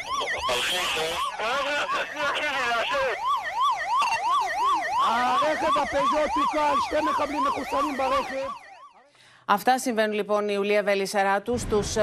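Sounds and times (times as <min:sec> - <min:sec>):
police siren yelping: 0:00.0 - 0:09.1.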